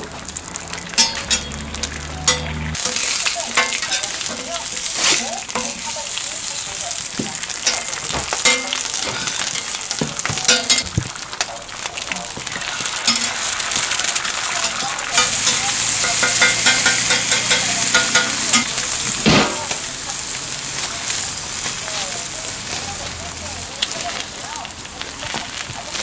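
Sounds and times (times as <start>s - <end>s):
food sizzling on a griddle: 0.0s - 26.0s
metal spatula scraping griddle: 0.7s - 5.9s, 7.6s - 10.8s, 14.6s - 19.8s.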